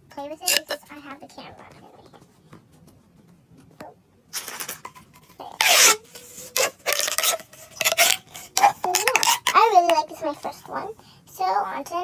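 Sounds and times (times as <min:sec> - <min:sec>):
plastic pop tube crackling: 0:00.5 - 0:00.8, 0:04.4 - 0:10.2.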